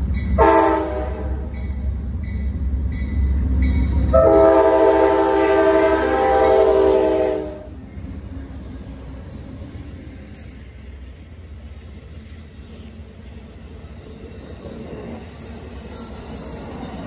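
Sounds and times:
crossing bell dinging: 0.0 - 4.8
diesel locomotives rumbling past: 0.0 - 17.0
train air horn chord: 0.4 - 1.5, 4.1 - 7.7.

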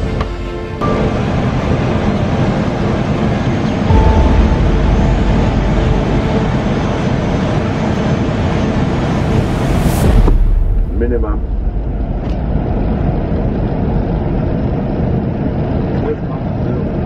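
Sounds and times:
airflow and engine rumble: 0.0 - 17.0
thin tone: 3.9 - 10.2.

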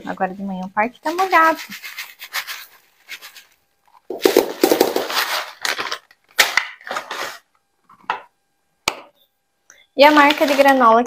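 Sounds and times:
plastic packaging rustling: 1.0 - 7.5, 10.0 - 11.0.

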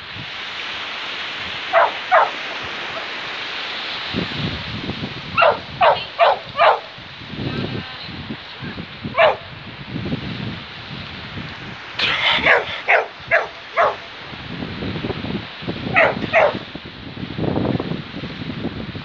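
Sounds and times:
dog barking: 1.7 - 3.2, 5.4 - 6.9, 9.1 - 9.5, 12.2 - 14.1, 15.9 - 16.6.

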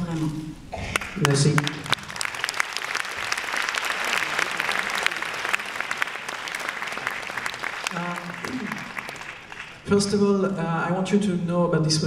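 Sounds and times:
audience applauding: 0.8 - 9.9.

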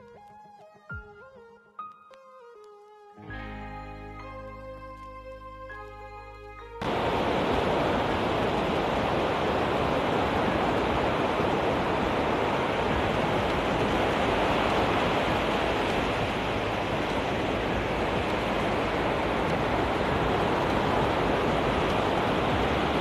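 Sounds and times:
surf breaking on beach: 6.8 - 23.0.

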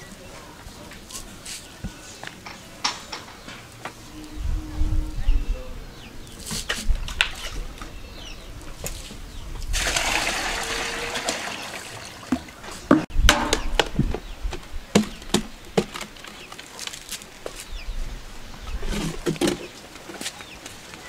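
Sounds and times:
water pouring into plastic bucket: 9.7 - 12.6
plastic containers knocking: 14.9 - 16.5.

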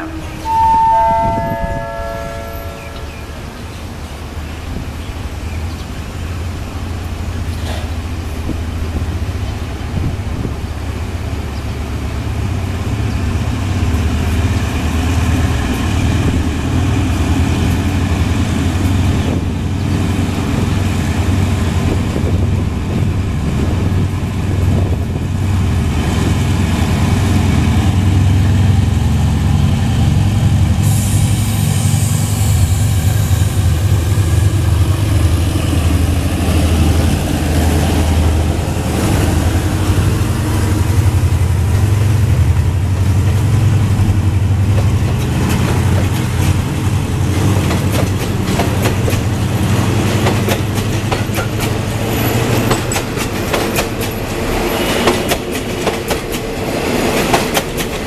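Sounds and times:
locomotive engine drone: 0.0 - 58.0
high hiss: 30.7 - 33.9.

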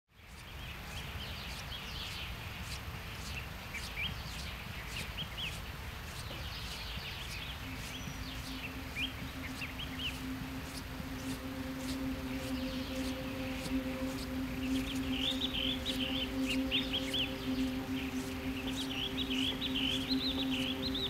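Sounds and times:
small birds chirping: 0.1 - 21.0
faint steady hum: 5.5 - 21.0
low rumbling background: 7.6 - 21.0.

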